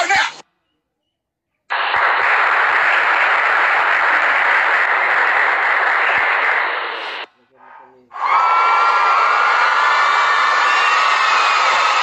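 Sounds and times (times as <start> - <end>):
crowd applause: 1.7 - 7.3, 8.2 - 12.0.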